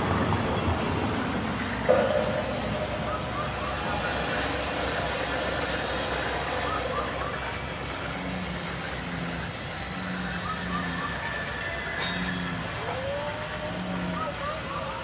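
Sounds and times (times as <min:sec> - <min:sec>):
low tone: 0:01.8 - 0:09.2.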